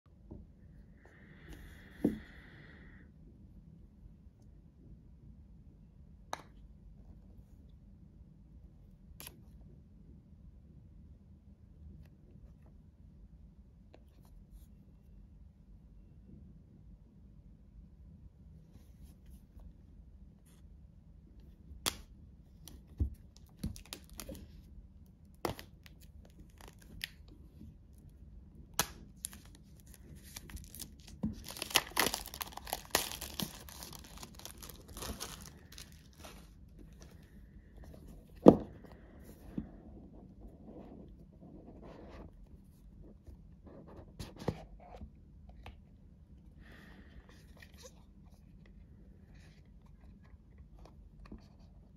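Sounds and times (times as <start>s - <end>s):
plastic wrap tearing and crinkling: 23.7s - 24.4s, 29.2s - 36.5s.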